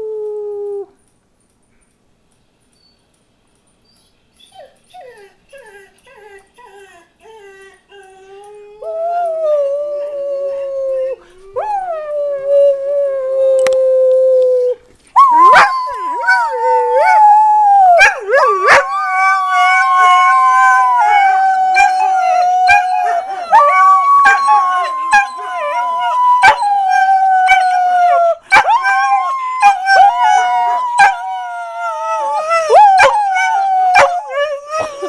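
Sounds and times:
dogs howling together: 0:14.6 - 0:35.0.

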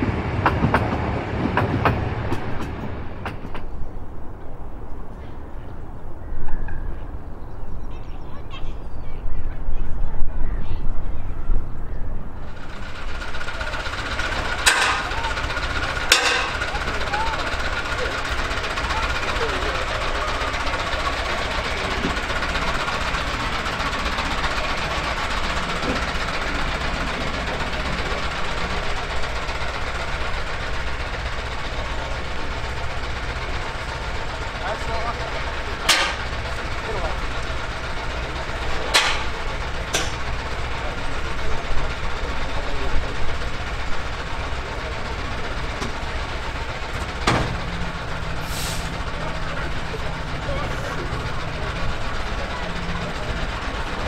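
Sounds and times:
diesel locomotive engine idling: 0:00.0 - 0:54.0
short hiss: 0:48.4 - 0:48.9.

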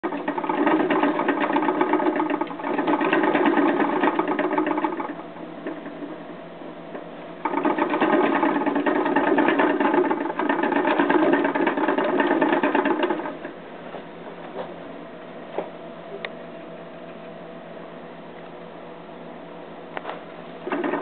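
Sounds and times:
exercise wheel rattling whir: 0:00.0 - 0:06.3, 0:06.9 - 0:13.6, 0:20.6 - 0:21.0.

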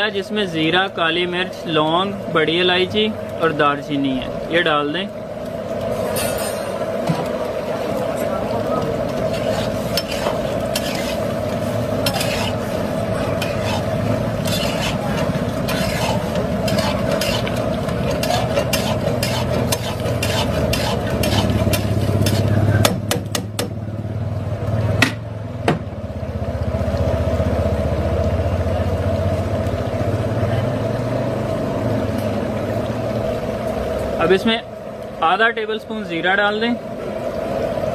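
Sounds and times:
curry bubbling and sizzling: 0:00.0 - 0:37.9
spatula stirring and scraping: 0:07.8 - 0:22.9
spatula knocking: 0:13.4 - 0:23.8.

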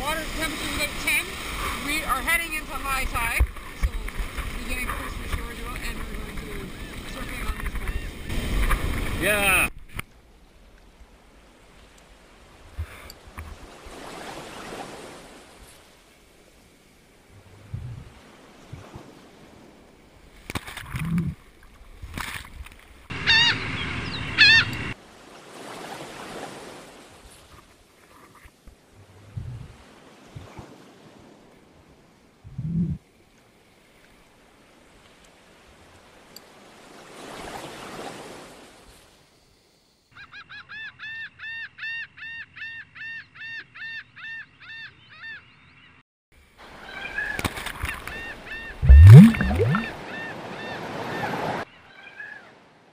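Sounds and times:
churning water rush: 0:00.0 - 0:09.7, 0:48.8 - 0:50.1
short pitched calls: 0:23.1 - 0:25.0
whitewater splashing on lens: 0:48.8 - 0:50.0.

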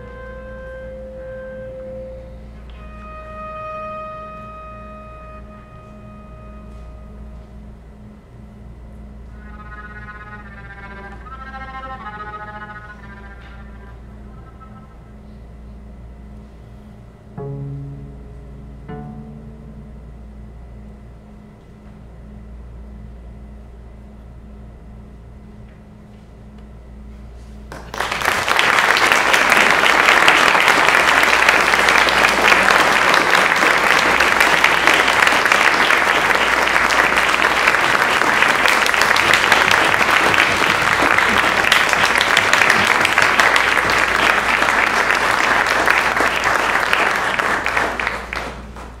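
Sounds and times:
audience applauding: 0:27.7 - 0:49.0.

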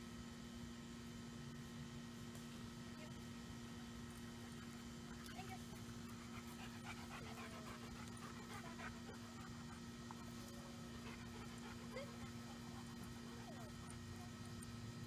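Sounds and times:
steady hum: 0:00.0 - 0:15.0
dog panting faintly: 0:05.4 - 0:14.6.

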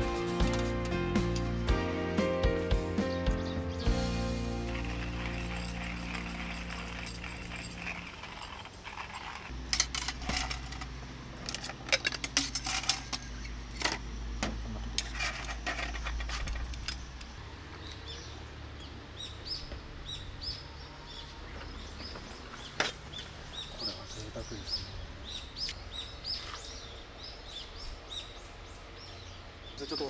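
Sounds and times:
bird chirping: 0:03.0 - 0:08.6, 0:15.8 - 0:30.0
ice cubes and mugs clinking: 0:04.4 - 0:14.0.

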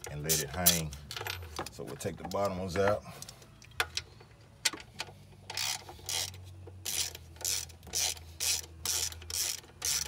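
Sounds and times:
ratchet wrench clicking: 0:05.4 - 0:10.0.

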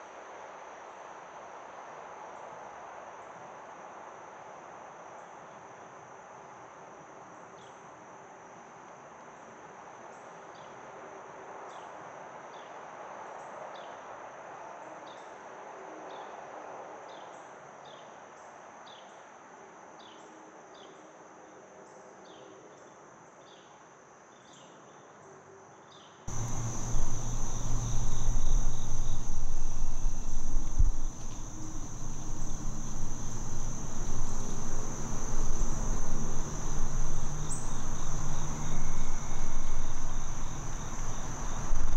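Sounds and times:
crickets chirping: 0:26.3 - 0:41.9
low rumble: 0:26.3 - 0:41.9.

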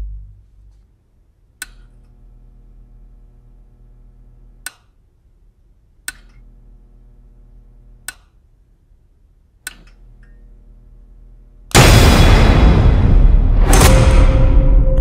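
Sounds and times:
faint electrical hum: 0:00.0 - 0:11.8.

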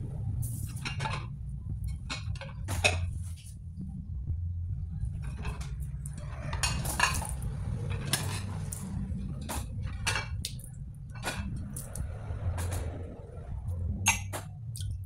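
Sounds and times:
steady low hum: 0:00.0 - 0:15.0
ceramic plates clinking: 0:06.2 - 0:08.8.

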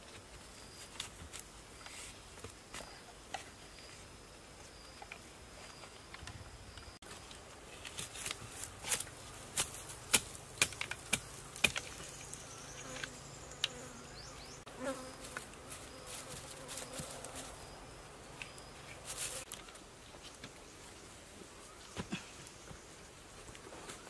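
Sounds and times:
bamboo poles clicking and knocking: 0:05.0 - 0:12.4, 0:19.2 - 0:20.6
insect buzzing: 0:11.8 - 0:19.5.

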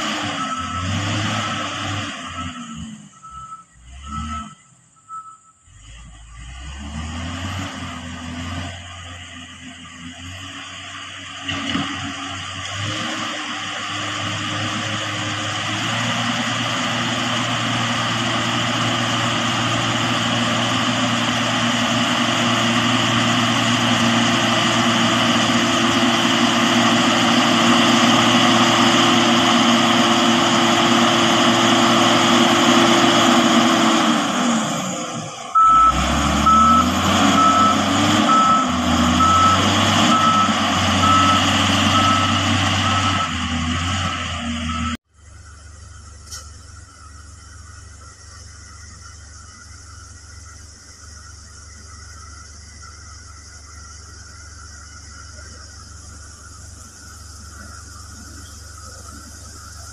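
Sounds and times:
diesel engine running hard: 0:00.0 - 0:59.9
reversing alarm beeping: 0:00.2 - 0:05.8, 0:35.5 - 0:43.8, 0:44.4 - 0:45.0.

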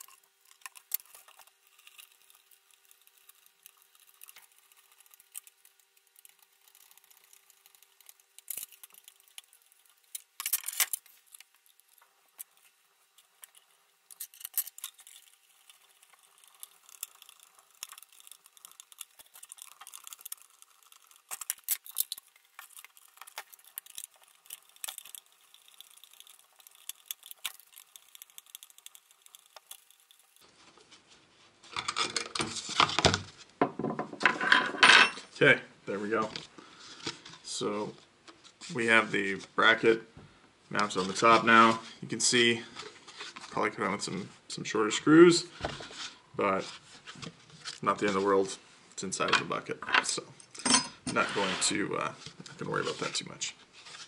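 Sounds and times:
metal hardware clicks and rattles: 0:10.1 - 0:12.6.

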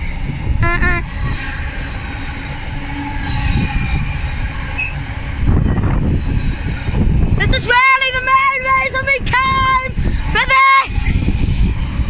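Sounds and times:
train wheels rumbling on rails: 0:00.0 - 0:12.0
high wheel squeal: 0:01.1 - 0:05.1.

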